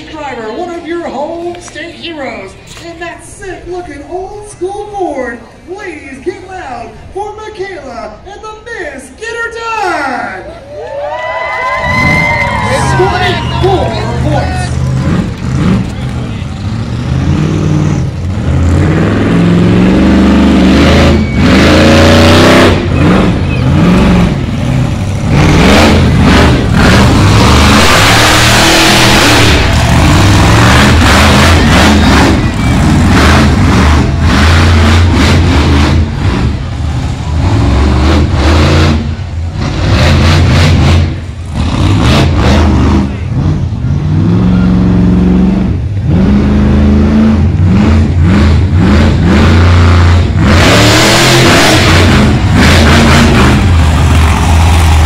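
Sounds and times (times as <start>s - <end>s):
monster truck engine revving: 11.5s - 55.0s.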